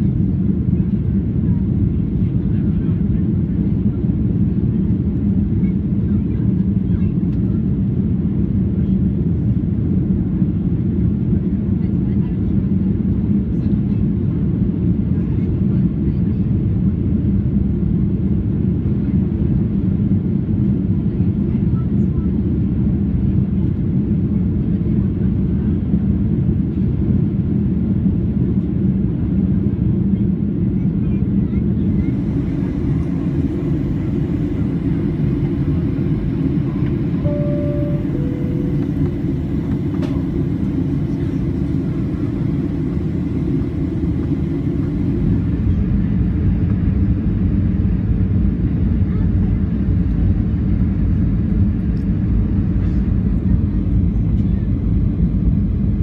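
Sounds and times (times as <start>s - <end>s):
airplane cabin rumble: 0.0s - 56.0s
jet engine noise: 0.0s - 56.0s
airflow: 31.9s - 46.2s.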